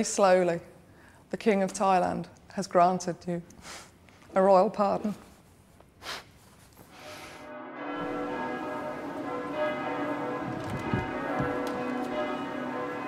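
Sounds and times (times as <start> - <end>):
church bells ringing: 7.5 - 13.0.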